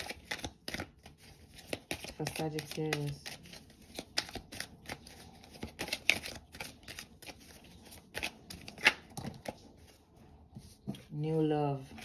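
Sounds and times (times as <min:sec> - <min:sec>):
cards being shuffled: 0:00.0 - 0:10.0.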